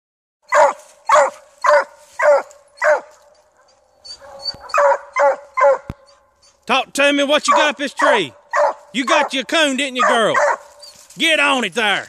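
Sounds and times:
dog barking: 0.5 - 6.2, 7.4 - 10.9.

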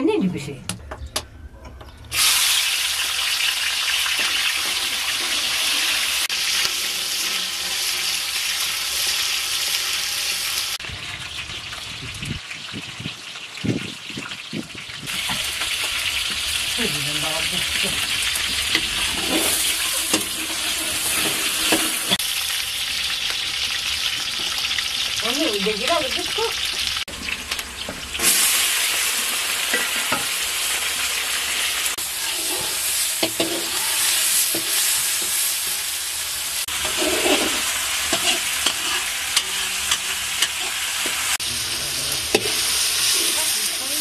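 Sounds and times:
onion sizzling in hot oil: 2.1 - 44.0.

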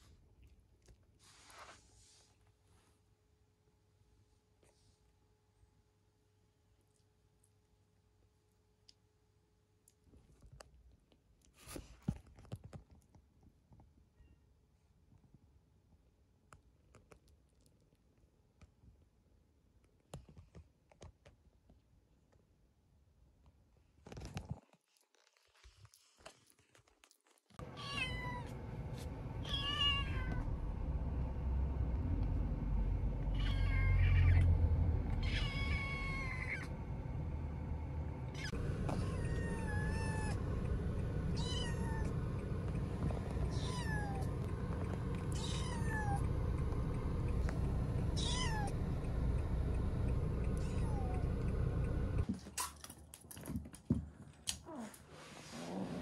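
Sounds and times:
steady low rumble: 27.6 - 52.3
kitten meowing: 27.8 - 28.5, 29.4 - 30.4, 33.3 - 34.5, 35.1 - 36.7, 38.3 - 40.4, 41.4 - 42.1, 43.5 - 44.3, 45.3 - 46.2, 48.2 - 48.8.

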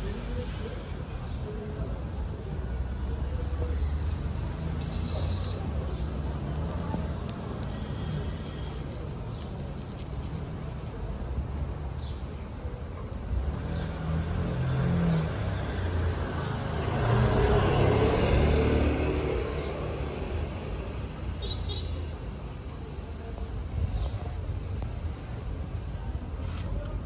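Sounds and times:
rumble of passing cars: 0.0 - 27.0
louder vehicle passing: 13.5 - 20.7.

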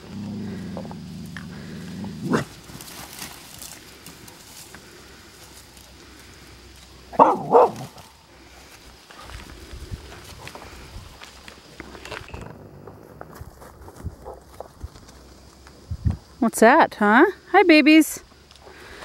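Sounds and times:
dog barking: 7.1 - 7.9.

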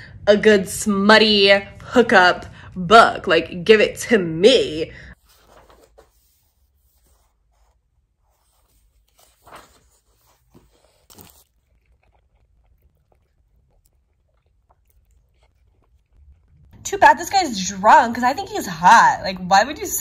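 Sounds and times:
person chewing and crunching: 10.4 - 16.8.

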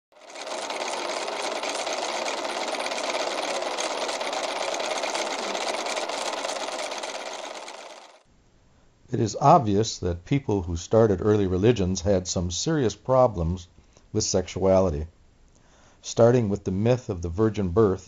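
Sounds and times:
printing press clatter: 0.2 - 8.2.

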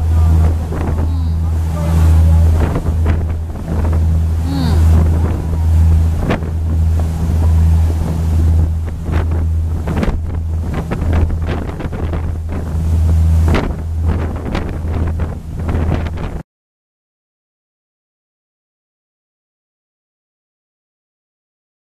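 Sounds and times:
boat engine humming: 0.0 - 16.4
rush of boat wake: 0.0 - 16.4
wind buffeting microphone: 0.0 - 16.4.

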